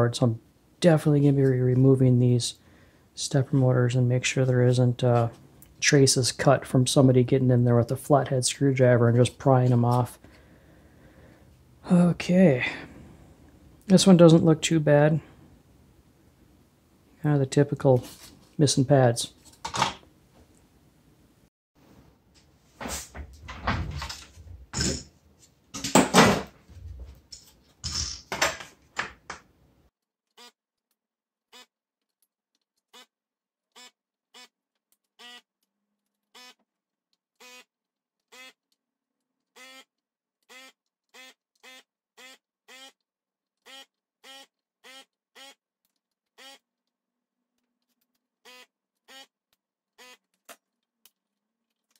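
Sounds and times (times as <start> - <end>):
desoldering pump buzzes: 33.7 - 34.6, 35.2 - 35.5, 36.3 - 36.6, 37.4 - 38.6, 39.5 - 43.0, 43.6 - 45.6, 46.3 - 46.6, 48.4 - 49.4, 50.0 - 50.3.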